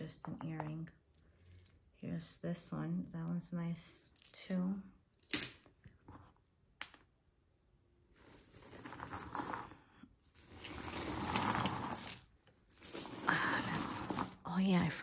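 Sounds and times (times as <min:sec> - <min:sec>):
jewelry clinking and rattling: 0:00.3 - 0:02.0, 0:08.1 - 0:14.8.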